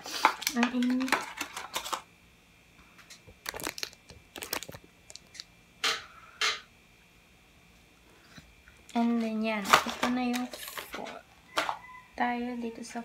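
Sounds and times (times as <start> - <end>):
plastic packaging crinkling: 0.2 - 2.0, 3.1 - 5.5.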